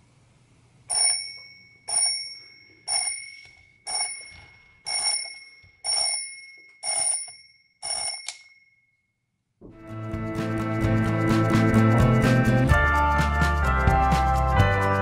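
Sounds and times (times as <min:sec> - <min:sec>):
alarm clock bell ringing: 0:00.9 - 0:09.0.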